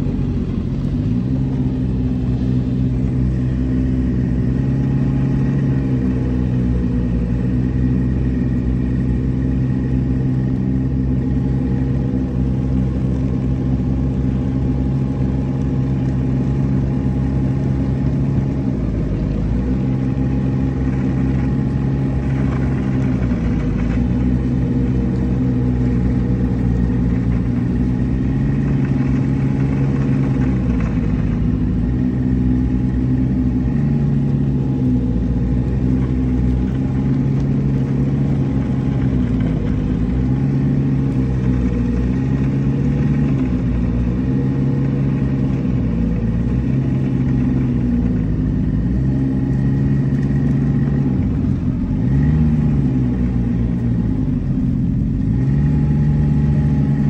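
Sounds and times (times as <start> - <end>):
snowmobile engine running: 0.0 - 57.0.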